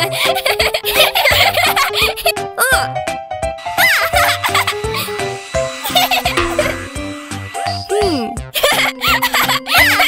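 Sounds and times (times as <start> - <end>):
upbeat cartoon music: 0.0 - 10.0
tone sliding downward: 5.6 - 7.7.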